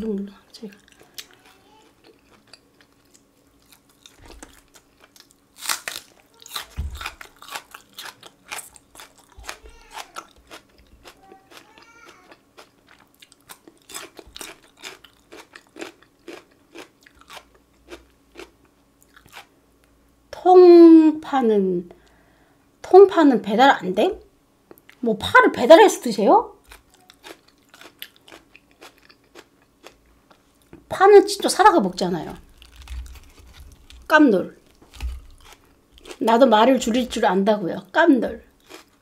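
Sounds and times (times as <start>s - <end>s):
crunchy fried chicken chewing: 0.1s - 19.5s, 26.6s - 30.7s, 32.4s - 36.3s, 38.6s - 39.0s.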